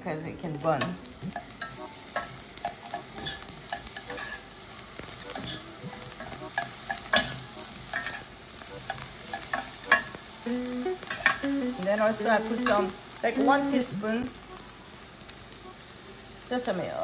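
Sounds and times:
soft sizzle in a skillet: 0.0 - 17.0
utensils scraping a metal pan: 0.8 - 4.4, 5.3 - 8.3.

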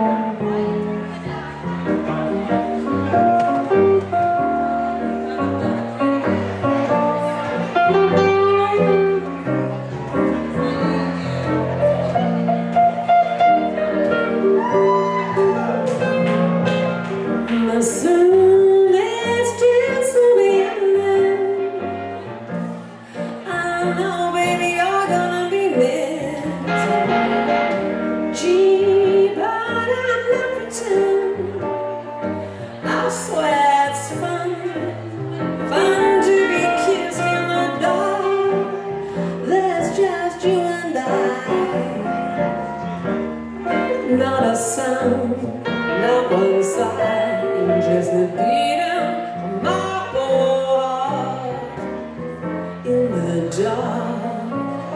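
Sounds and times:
electric guitar: 0.0 - 18.3.

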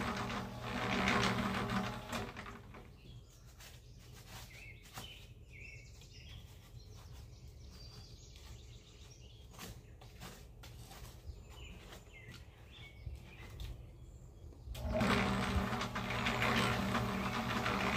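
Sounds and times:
cement mixer running: 0.0 - 3.0, 14.7 - 17.9
birds chirping: 2.4 - 17.9.

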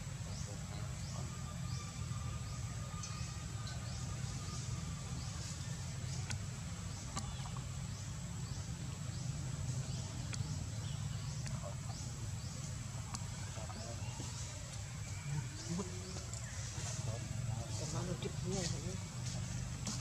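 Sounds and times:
faint clicks: 6.2 - 7.7, 10.2 - 10.5, 13.0 - 13.3.

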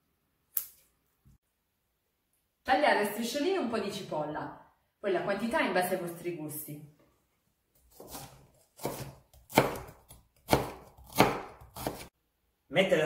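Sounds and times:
knife cutting on wooden board: 7.8 - 12.1.

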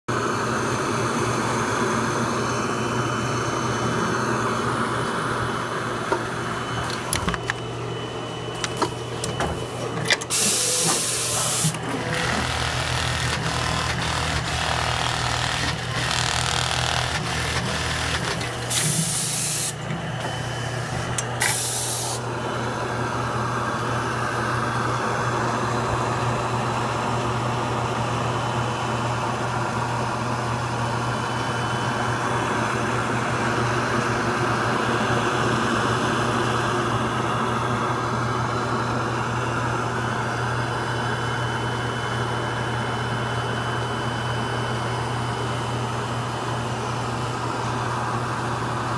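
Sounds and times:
machine humming and whirring: 0.1 - 48.9
pneumatic air hisses: 10.3 - 11.8, 18.7 - 19.8, 21.4 - 22.2.

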